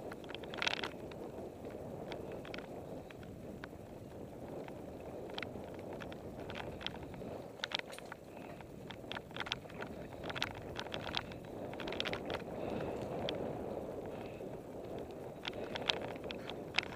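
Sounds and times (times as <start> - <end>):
bike clicks and rattles: 0.0 - 16.9
bike tyres rumbling on dirt: 0.0 - 16.9.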